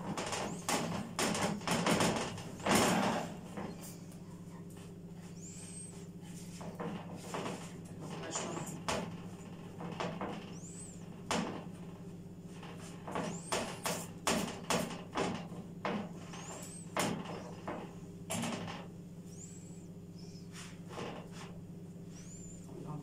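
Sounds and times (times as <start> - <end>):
steady low hum: 0.0 - 23.0
high squeaks: 6.6 - 11.2.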